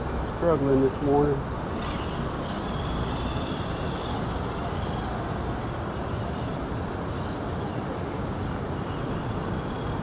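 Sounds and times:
faint high whine: 0.3 - 10.0.

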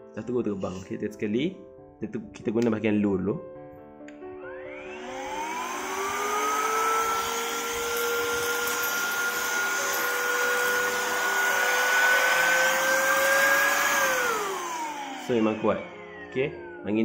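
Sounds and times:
electric air duster whining: 4.2 - 17.0.

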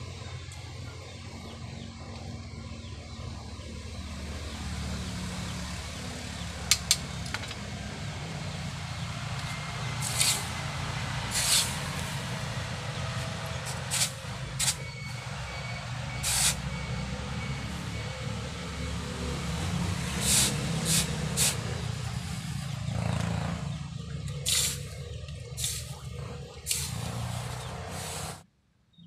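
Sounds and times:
air blower droning: 0.0 - 28.4
water hissing on hot metal: 8.4 - 14.9, 16.1 - 18.7, 19.4 - 22.8, 24.4 - 25.0, 25.6 - 26.0, 26.6 - 28.4.

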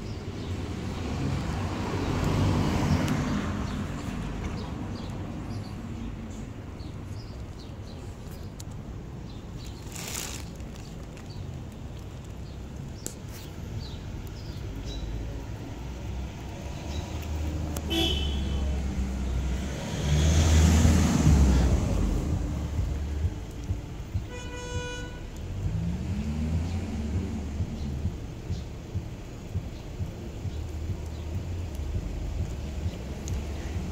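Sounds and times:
vehicle rumble: 0.0 - 33.9
car horn toot: 17.9 - 18.7, 24.3 - 25.3.

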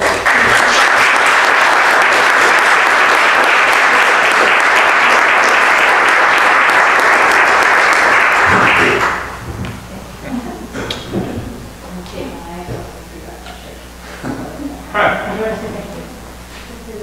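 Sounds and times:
people applauding: 0.0 - 9.8.

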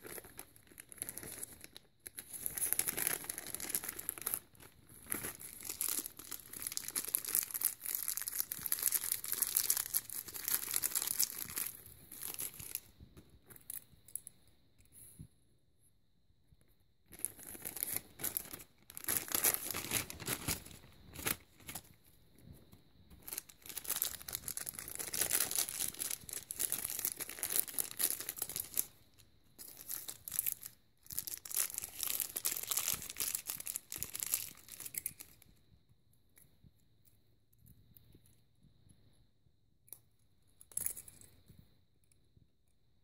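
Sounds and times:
plastic packaging crinkling and tearing: 0.0 - 12.9, 17.1 - 21.9, 23.2 - 35.4.

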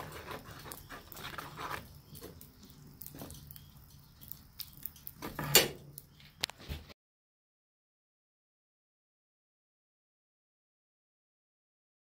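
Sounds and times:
steel rod scraping a pan: 0.0 - 1.9.

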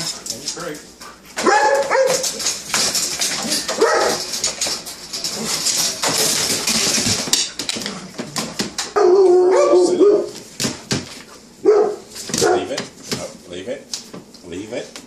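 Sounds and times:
dog claws clicking and scrabbling: 0.0 - 9.0
dog whining: 8.9 - 10.4.

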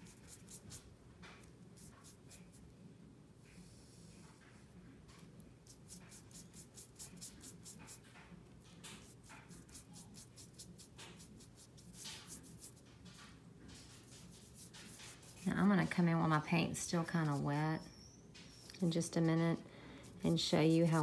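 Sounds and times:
paintbrush strokes on paper: 0.0 - 2.7, 5.6 - 8.2, 8.9 - 17.8, 18.4 - 21.0.

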